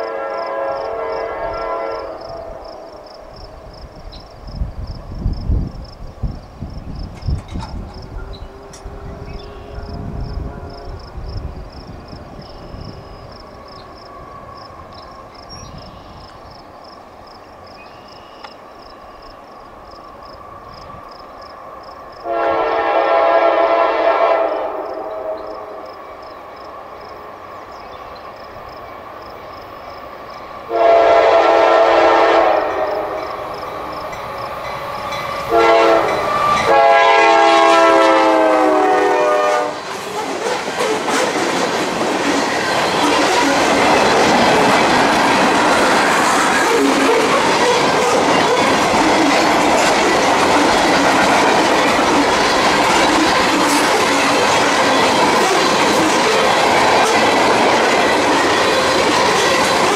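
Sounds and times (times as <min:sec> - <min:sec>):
locomotive horn blasts: 0:00.0 - 0:02.8, 0:22.2 - 0:25.8, 0:30.7 - 0:33.4, 0:35.5 - 0:39.8
train wheels and engines: 0:00.0 - 0:59.9.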